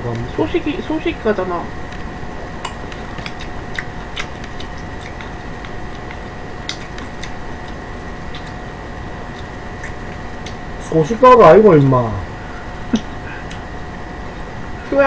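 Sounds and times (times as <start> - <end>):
faint high whine: 0.0 - 15.0
chewing and chopstick clicks: 1.9 - 8.6, 9.3 - 10.6.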